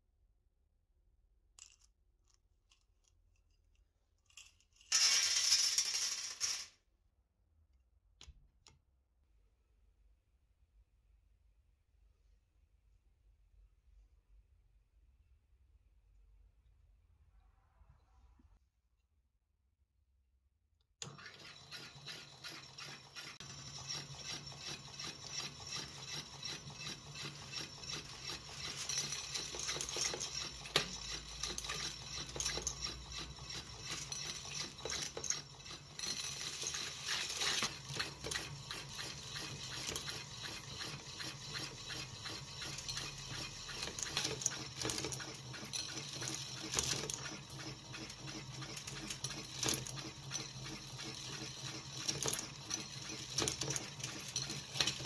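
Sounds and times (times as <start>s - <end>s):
coins clicking and rattling: 4.2s - 6.8s, 21.5s - 55.0s.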